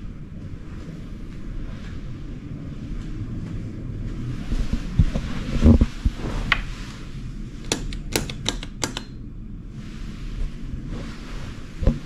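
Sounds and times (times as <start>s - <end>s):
light switches clicking: 7.7s - 9.2s.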